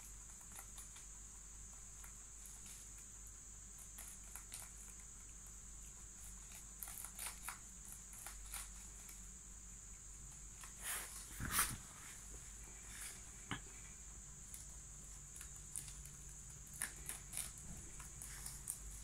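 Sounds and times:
high-pitched hiss: 0:09.4 - 0:15.6
handling rustles: 0:10.6 - 0:13.3.

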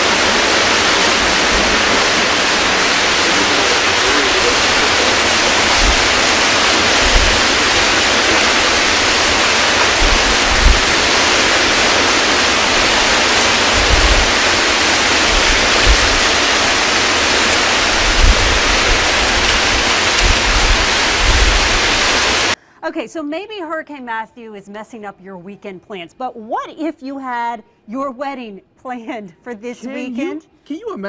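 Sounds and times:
heavy surf: 0:00.0 - 0:22.6
hurricane wind: 0:00.0 - 0:22.6
wind gusts buffeting microphone: 0:00.0 - 0:22.6.

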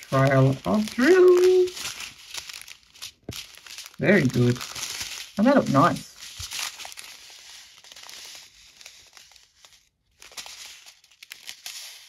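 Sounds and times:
plastic bags crinkling: 0:00.0 - 0:12.0.

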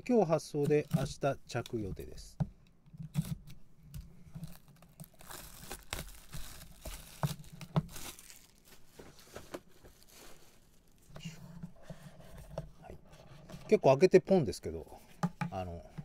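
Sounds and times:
plastic wrap crinkling: 0:04.3 - 0:11.1
box cutter slitting plastic wrap: 0:05.1 - 0:08.6.

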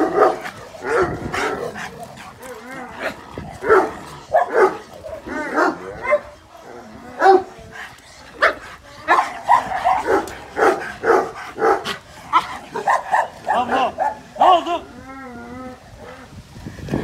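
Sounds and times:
dogs barking: 0:00.0 - 0:06.4, 0:07.2 - 0:07.5, 0:08.4 - 0:14.4.

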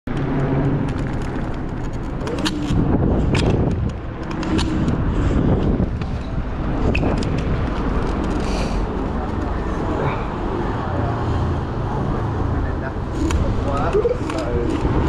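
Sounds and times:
electric scooter road noise: 0:00.1 - 0:15.0
wind buffeting microphone: 0:00.1 - 0:15.0.

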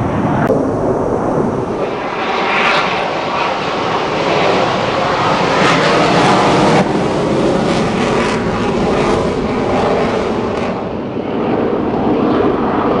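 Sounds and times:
jet aircraft roar: 0:00.0 - 0:13.0.

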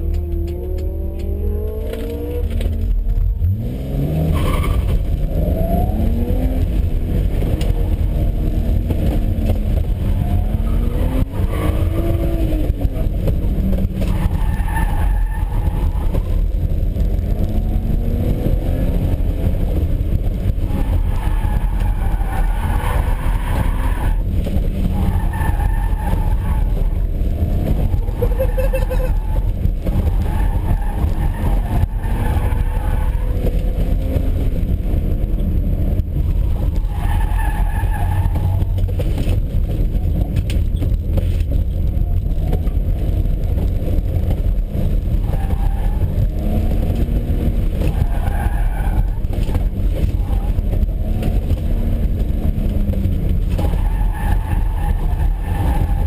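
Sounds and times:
car engine revving: 0:00.0 - 0:56.0
tires squealing: 0:03.5 - 0:06.6, 0:07.4 - 0:18.1, 0:20.4 - 0:34.5, 0:36.2 - 0:56.0.

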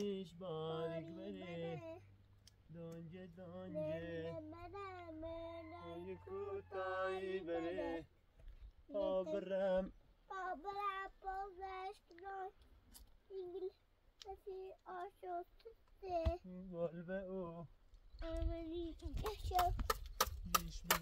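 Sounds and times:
high voice singing: 0:00.7 - 0:02.1.

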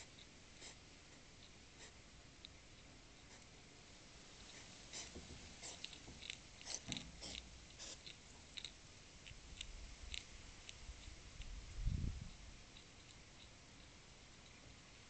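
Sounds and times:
hedgehog crunching food: 0:04.4 - 0:15.0.

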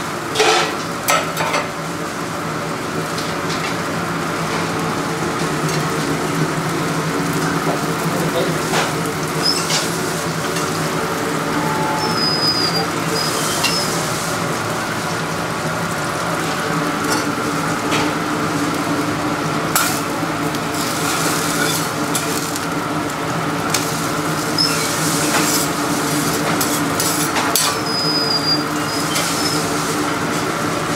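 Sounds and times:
food sizzling on a griddle: 0:00.0 - 0:30.9
steady hum: 0:11.0 - 0:13.1
brief high squeaks: 0:11.5 - 0:14.0.

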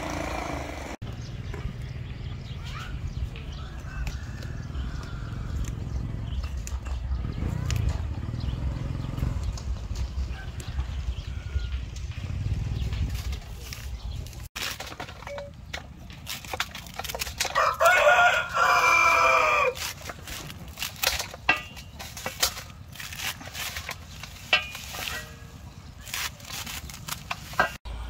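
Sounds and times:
rooster crowing: 0:17.6 - 0:19.8
knife clicking through vegetable stems: 0:19.6 - 0:25.3, 0:25.9 - 0:27.8.

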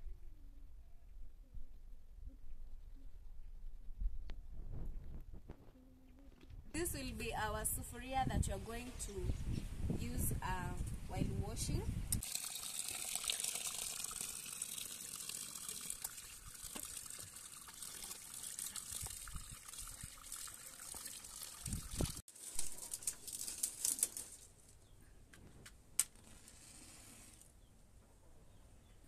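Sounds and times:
water splashing: 0:12.2 - 0:22.2
water pouring into metal basin: 0:12.2 - 0:24.0.

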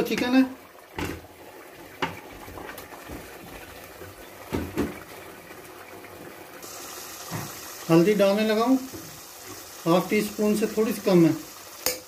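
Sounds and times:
pot simmering: 0:00.0 - 0:12.0
knocks: 0:04.5 - 0:05.0.

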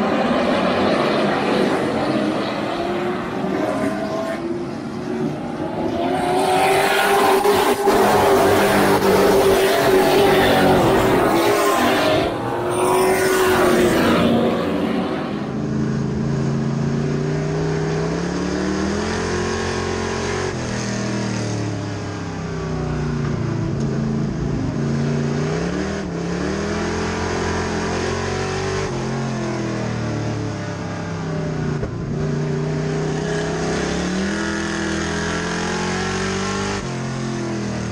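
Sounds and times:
race trucks passing: 0:00.0 - 0:16.2
truck engine revving: 0:00.0 - 0:16.2.

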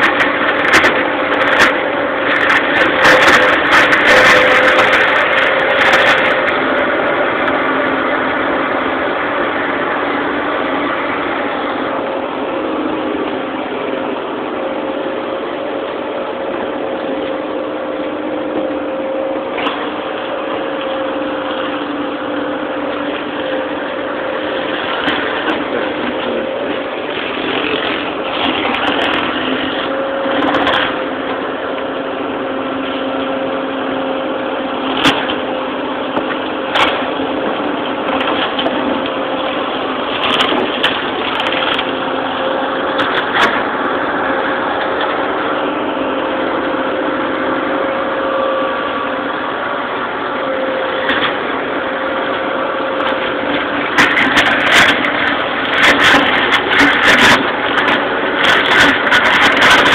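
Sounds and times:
tractor and flail mower droning: 0:00.0 - 0:59.9
branches cracking and clattering: 0:19.5 - 0:32.0, 0:36.1 - 0:46.8, 0:50.9 - 0:59.9.

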